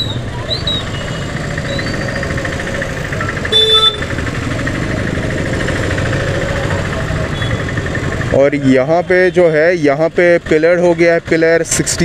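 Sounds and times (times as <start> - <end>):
vehicle engines idling: 0.0 - 12.0
short horn beep: 3.5 - 4.1.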